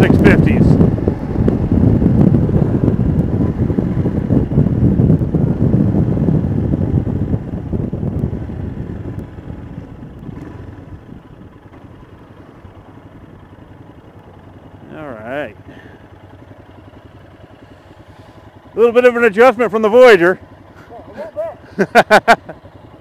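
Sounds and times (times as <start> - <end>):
wind rushing: 0.0 - 11.4
motorcycle engine rumbling: 0.0 - 23.0.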